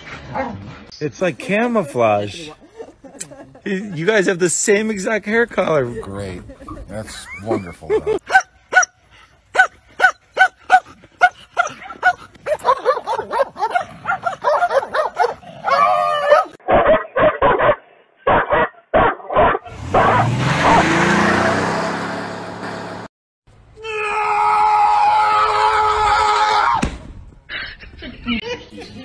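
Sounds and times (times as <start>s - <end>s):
dogs barking and yelping: 8.2s - 21.0s.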